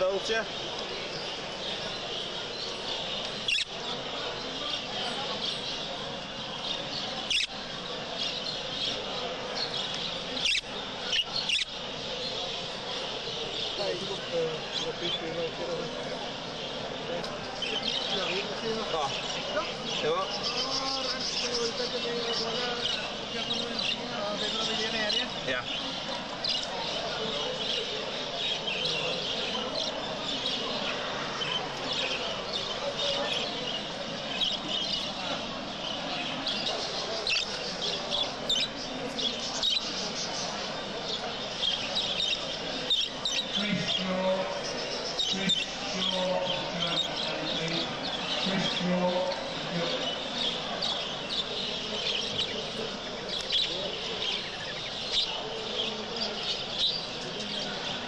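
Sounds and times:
budgerigars chirping and chattering: 0.0s - 58.0s
sharp budgie calls: 3.4s - 3.8s, 7.2s - 7.5s, 9.9s - 11.8s.

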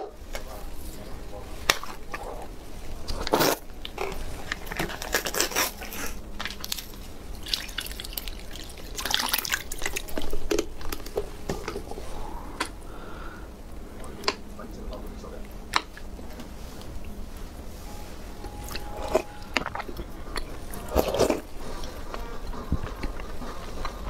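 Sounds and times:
liquid sloshing in a glass bowl: 7.4s - 10.4s
spoon stirring: 17.8s - 21.4s.

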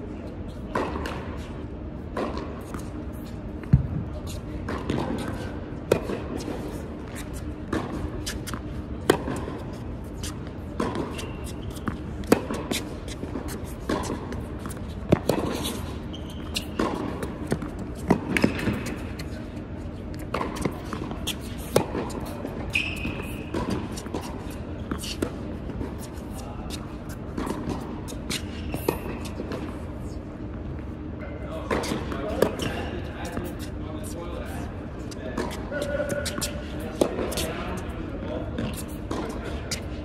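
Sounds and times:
shoe squeaks: 10.1s - 13.8s, 14.5s - 19.4s, 20.0s - 25.2s, 35.1s - 37.7s.

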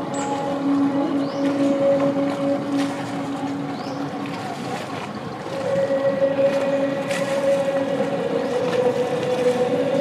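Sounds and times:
boat engine droning: 0.0s - 10.0s
water noise: 0.0s - 10.0s.

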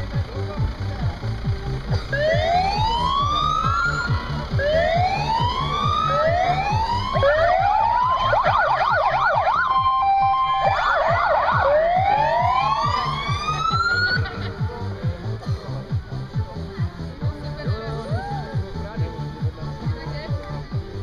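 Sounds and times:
background music low beat: 0.0s - 21.0s
electronic siren cycling tones: 2.2s - 14.2s.

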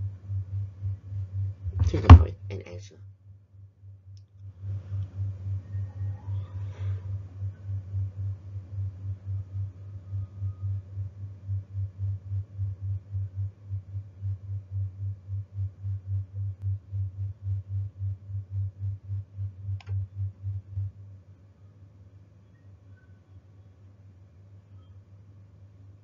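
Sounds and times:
low pulsing timer beat: 0.0s - 2.5s, 7.1s - 21.2s.

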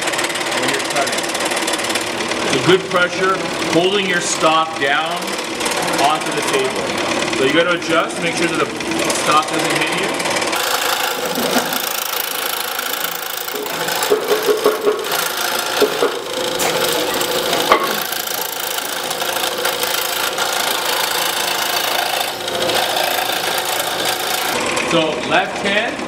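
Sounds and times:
scroll saw cutting board: 10.6s - 24.9s.

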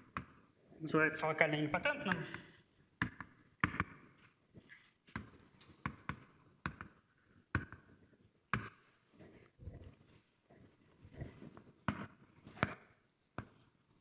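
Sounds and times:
chalk writing on blackboard: 5.9s - 9.5s, 11.6s - 14.0s.

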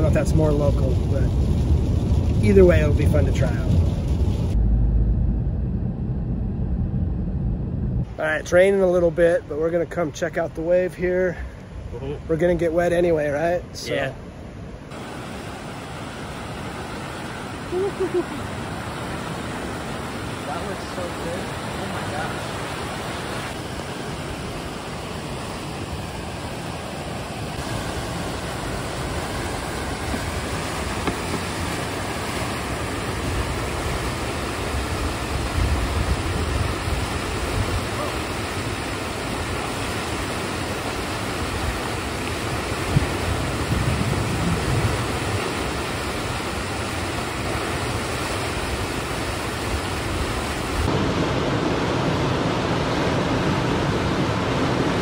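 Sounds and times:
whitewater rushing: 14.9s - 55.0s
wind buffeting microphone: 32.7s - 51.8s.

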